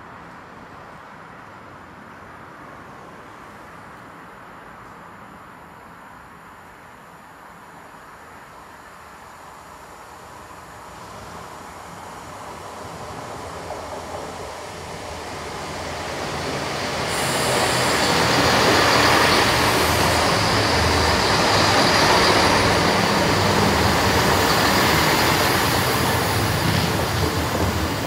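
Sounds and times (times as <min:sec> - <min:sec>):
diesel train engines: 0:00.2 - 0:28.0
train wheels rumbling: 0:11.2 - 0:28.0.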